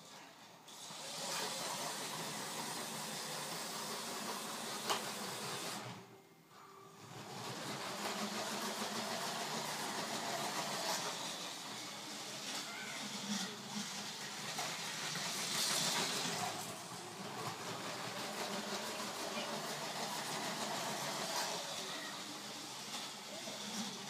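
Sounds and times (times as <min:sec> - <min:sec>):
toy train wheels on track: 0:00.0 - 0:06.1, 0:07.0 - 0:24.0
small electric motor whirring: 0:07.4 - 0:24.0.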